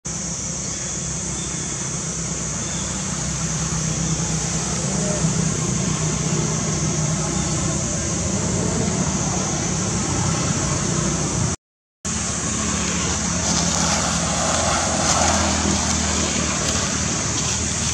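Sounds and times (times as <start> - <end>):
high-pitched hiss: 0.1 - 11.5
low traffic-like hum: 0.1 - 17.9.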